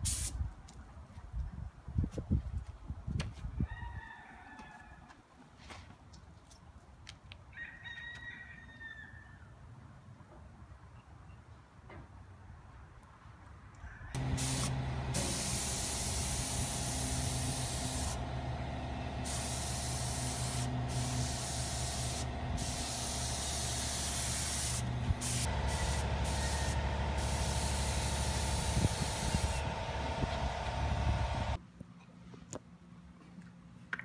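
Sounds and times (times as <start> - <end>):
spray gun hissing: 0.0 - 0.3, 14.2 - 31.6
steady low hum: 14.2 - 33.6.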